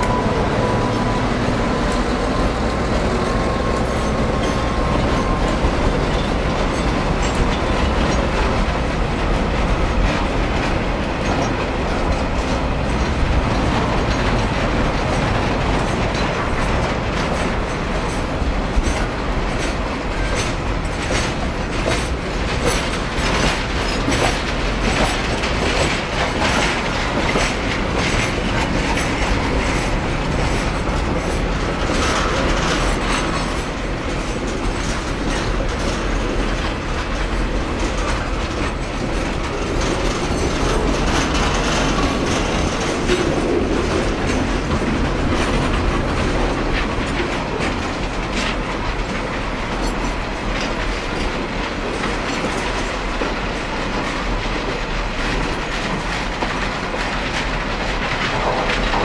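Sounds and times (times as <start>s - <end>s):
freight wagons rumbling on rails: 0.0s - 59.0s
wheels clicking over rail joints: 0.0s - 59.0s.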